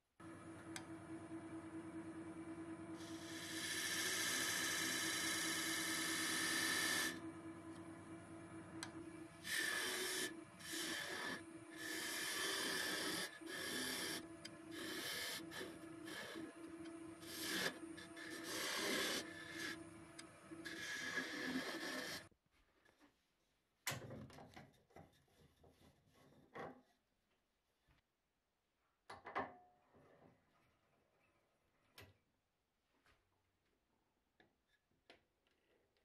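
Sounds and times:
lathe humming: 0:00.2 - 0:22.3
scraper cutting spinning wood: 0:02.9 - 0:07.3, 0:08.7 - 0:22.3.

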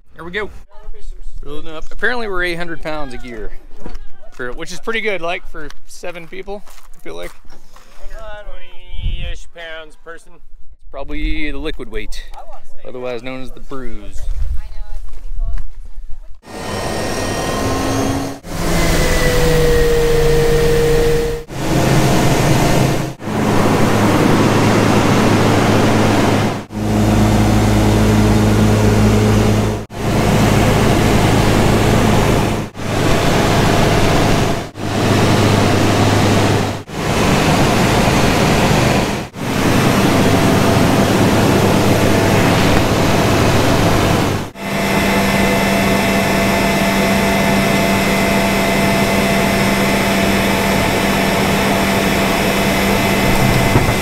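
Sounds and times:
small plane engine droning: 0:16.4 - 0:54.0
steady engine hum: 0:16.4 - 0:54.0.

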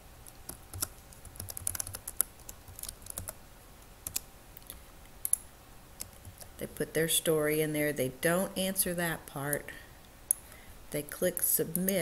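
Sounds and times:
typing on computer keyboard: 0:00.5 - 0:03.4, 0:04.0 - 0:04.2.

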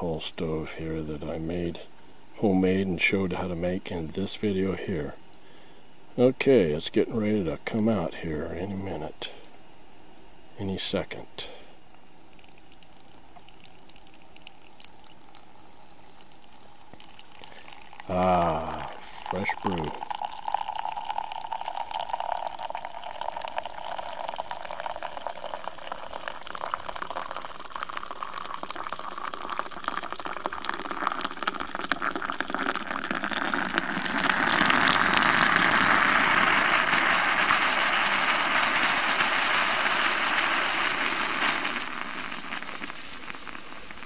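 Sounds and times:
coffee trickling from spout: 0:12.3 - 0:44.0
moka pot hissing gurgle: 0:12.4 - 0:44.0.

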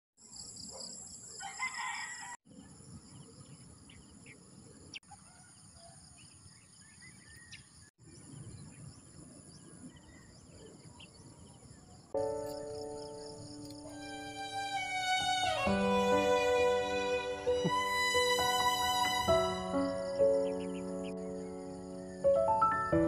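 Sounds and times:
rooster crowing: 0:01.4 - 0:02.4
birds chirping: 0:02.5 - 0:23.0
high-pitched insect drone: 0:15.6 - 0:22.0.

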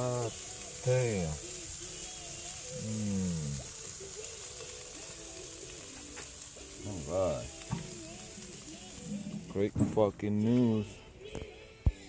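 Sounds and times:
steaks sizzling on grill: 0:00.0 - 0:12.0.

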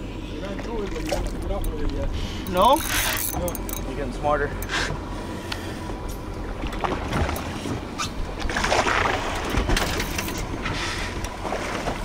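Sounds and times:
boat engine rumble: 0:00.0 - 0:12.0
water washing and splashing: 0:08.4 - 0:10.2.

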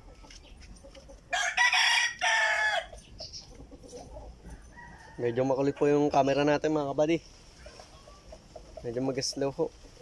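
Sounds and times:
rooster crowing: 0:01.3 - 0:02.9, 0:04.5 - 0:05.9.

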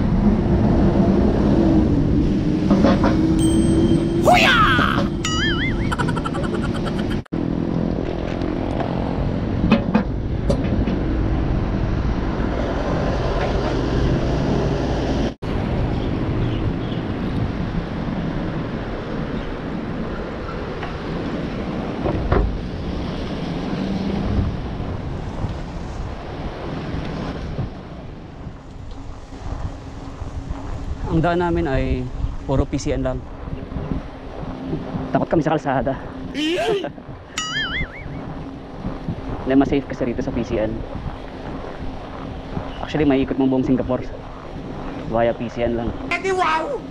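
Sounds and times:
wind rushing over microphone: 0:00.0 - 0:46.9.

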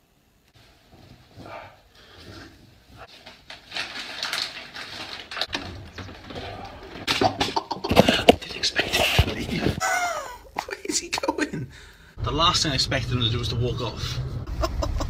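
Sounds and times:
man laughing: 0:09.7 - 0:10.6, 0:14.5 - 0:15.0.

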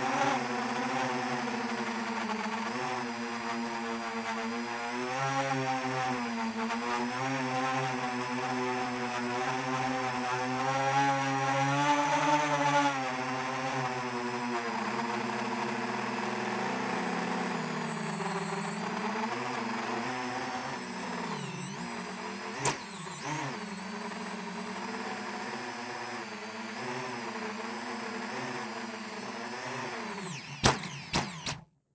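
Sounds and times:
quadcopter propellers whining: 0:00.0 - 0:31.6
sharp click: 0:22.6 - 0:22.9, 0:30.4 - 0:31.7.

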